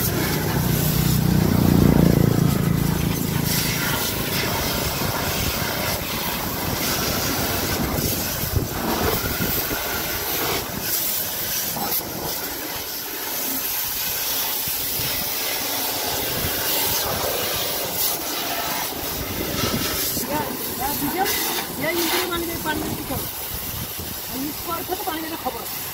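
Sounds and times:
pressure washer spraying tyre: 0.0s - 25.9s.

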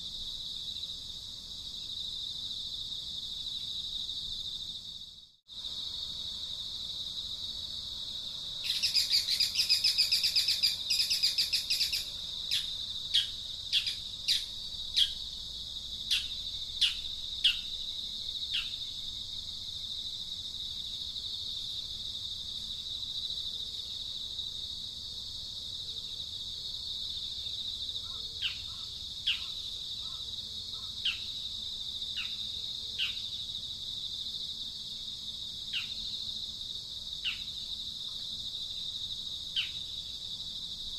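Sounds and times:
high-pitched insect drone: 8.6s - 15.4s.

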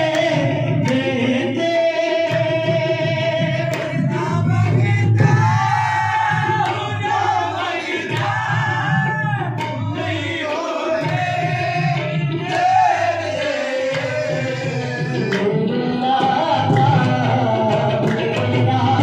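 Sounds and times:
tabla: 0.0s - 19.0s
voices singing devotional melody: 0.0s - 19.0s.

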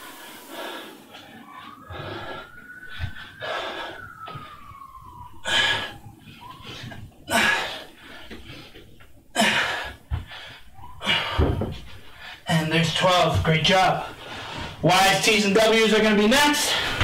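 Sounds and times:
faint distant siren: 0.0s - 17.0s.

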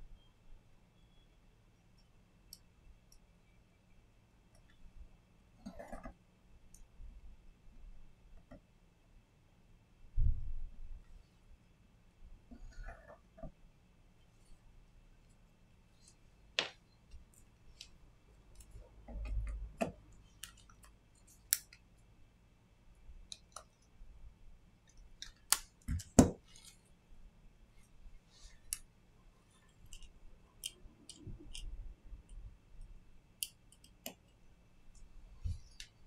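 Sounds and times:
small clicks and taps of tools: 16.0s - 21.9s, 23.2s - 23.9s, 29.6s - 36.0s.

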